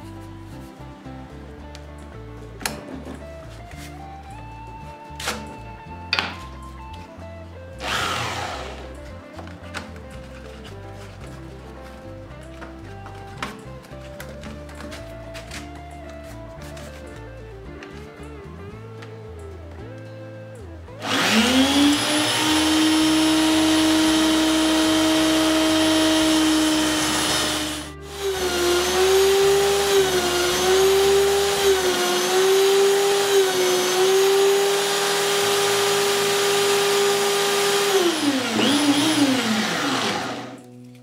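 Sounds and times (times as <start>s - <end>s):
belt sander whining: 7.8s - 9.1s, 21.0s - 40.7s.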